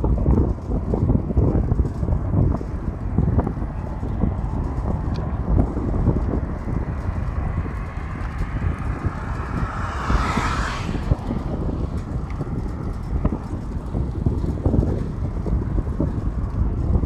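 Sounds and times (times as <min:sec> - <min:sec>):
wind rumbling on microphone: 0:00.0 - 0:17.0
car passing: 0:03.6 - 0:15.2.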